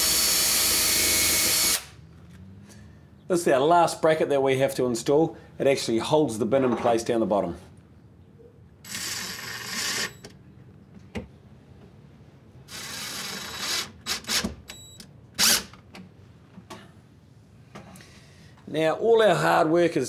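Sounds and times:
cordless drill whining: 0.0 - 2.0, 8.9 - 10.2, 12.7 - 14.5, 15.4 - 15.7.

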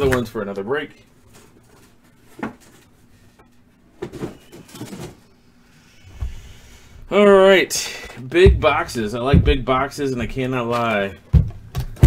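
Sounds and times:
cardboard boxes knocking and scraping: 8.4 - 10.4.

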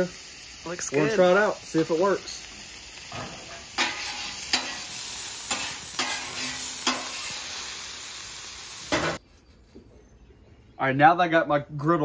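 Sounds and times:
grease sizzling: 0.0 - 9.2
metal scraper on griddle: 3.1 - 7.8, 8.9 - 9.2.

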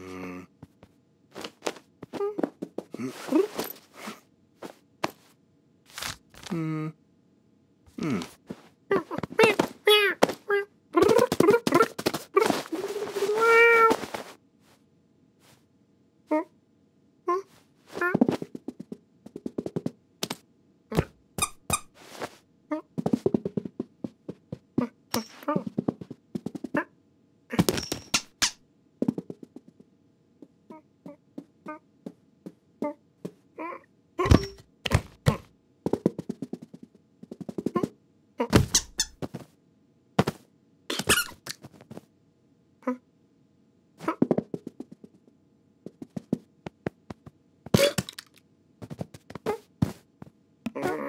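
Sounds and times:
cartoon cat grunts and mews: 0.0 - 0.5, 7.9 - 14.0, 17.3 - 18.3, 33.6 - 34.6, 42.8 - 43.0, 50.7 - 51.0
cartoon thumps and scrabbling: 8.0 - 14.3, 17.9 - 21.9, 22.7 - 26.9, 27.5 - 29.8, 34.2 - 39.5, 40.2 - 42.0, 44.0 - 45.2, 45.9 - 50.0, 50.7 - 51.0
clothing rustling: 11.3 - 14.4.

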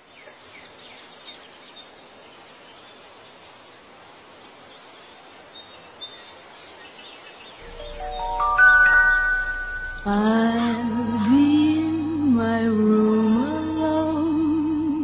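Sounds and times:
steady background hiss: 0.0 - 15.0
chiming melody: 7.6 - 11.2.

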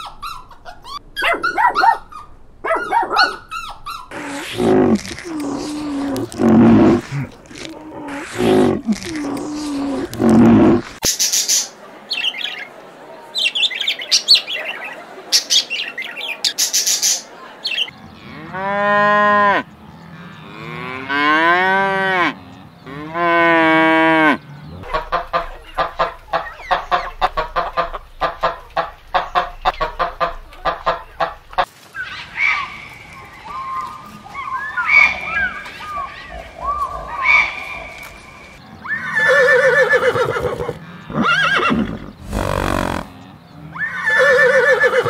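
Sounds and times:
higher animal calls: 0.9 - 11.0, 33.5 - 45.0
cow mooing: 18.1 - 24.9, 40.6 - 43.8
animal rattling pulses: 42.2 - 43.1.

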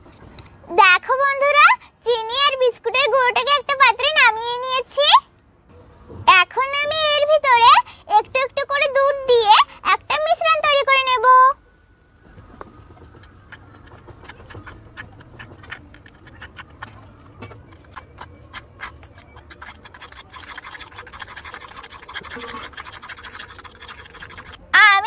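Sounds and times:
metal spoon scraping a bowl: 13.5 - 24.6.

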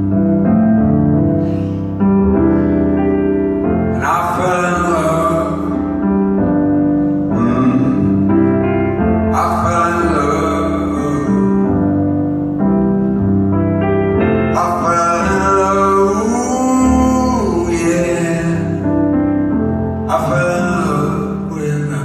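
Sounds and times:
sustained keyboard chords: 0.0 - 22.0
man singing long notes: 3.9 - 6.0, 7.3 - 8.6, 9.3 - 12.0, 14.5 - 18.9, 20.1 - 22.0.

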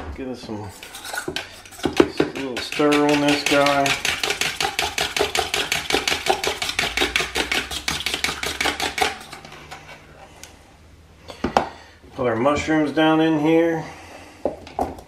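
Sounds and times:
fork beating egg in bowl: 0.7 - 9.6.

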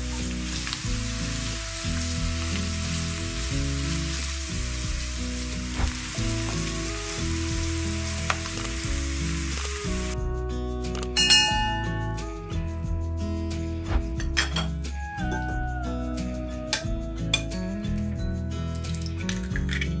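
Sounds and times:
food sizzling in oil: 0.0 - 10.2
background music with chords: 0.0 - 20.0.

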